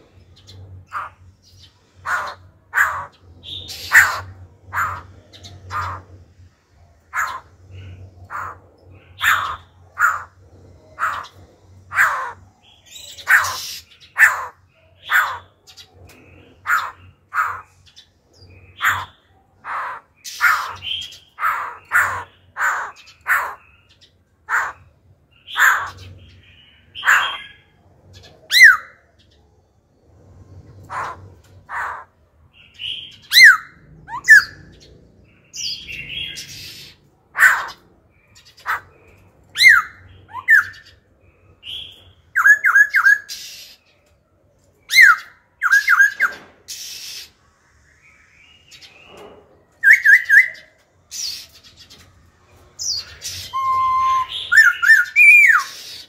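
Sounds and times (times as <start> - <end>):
laughingthrush singing: 52.8 - 56.0.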